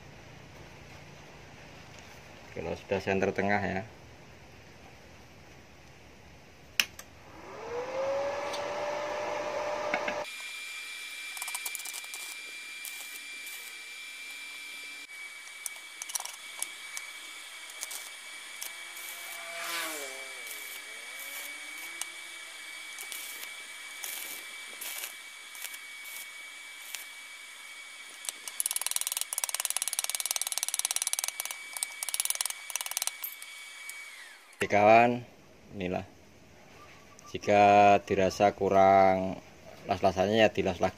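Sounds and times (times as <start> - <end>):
rising hum: 7.0 - 11.3, 12.2 - 28.2
arc welding crackle: 10.2 - 34.7.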